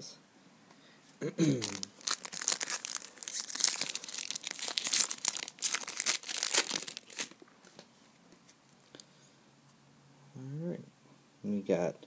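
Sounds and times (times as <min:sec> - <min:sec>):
foil wrapper crinkling: 0:01.6 - 0:07.8.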